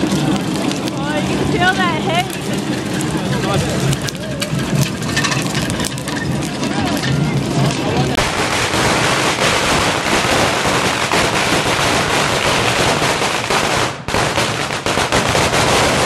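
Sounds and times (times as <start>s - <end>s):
firecrackers crackling: 0.0s - 16.0s.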